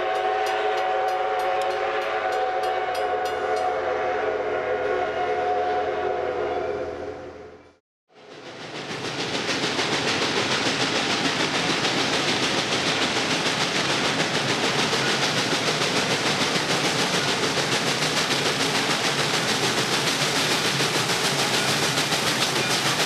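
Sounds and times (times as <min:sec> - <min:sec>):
steam locomotive exhaust chuffs: 0:00.0 - 0:06.3, 0:08.1 - 0:23.0
rush of steam: 0:08.1 - 0:23.0.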